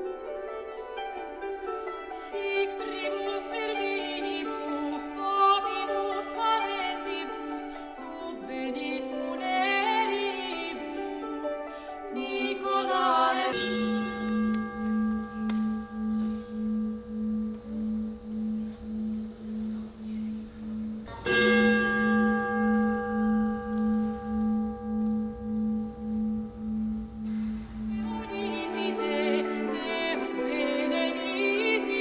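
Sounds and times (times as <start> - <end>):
gong ringing with pulsing: 13.5 - 30.4.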